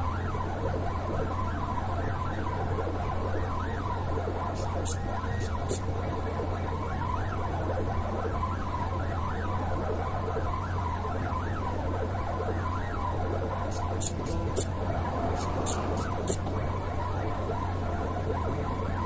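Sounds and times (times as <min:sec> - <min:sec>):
low hum: 0:13.5 - 0:19.0
stepper motors whining: 0:13.5 - 0:19.0.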